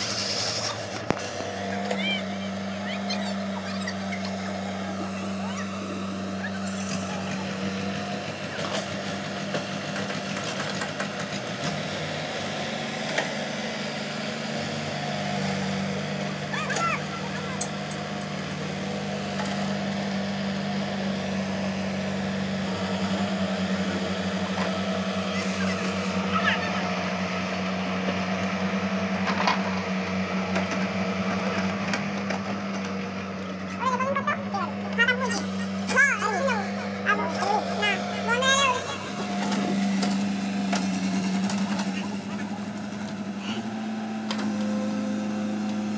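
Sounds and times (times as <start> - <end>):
excavator diesel engine running: 0.0 - 45.9.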